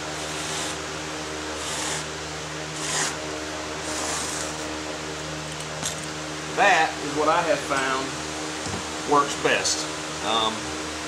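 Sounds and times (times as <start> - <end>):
steady mechanical hum: 0.0 - 11.0
knife scratching through mat: 0.2 - 0.8, 1.6 - 2.1, 2.8 - 3.2, 3.8 - 4.7.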